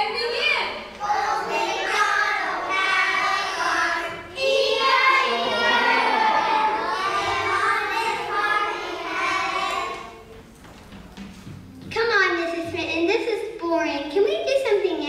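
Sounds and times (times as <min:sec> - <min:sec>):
children singing together: 0:01.0 - 0:10.3.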